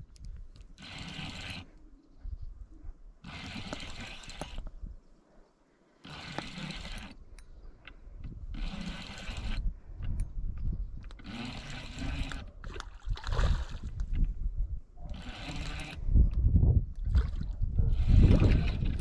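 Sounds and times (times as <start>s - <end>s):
fishing reel cranking: 0.8s - 1.7s, 3.2s - 4.7s, 6.0s - 7.2s, 8.5s - 9.7s, 11.1s - 12.8s, 15.1s - 16.1s, 18.0s - 19.0s
wind rumble on microphone: 8.0s - 19.0s.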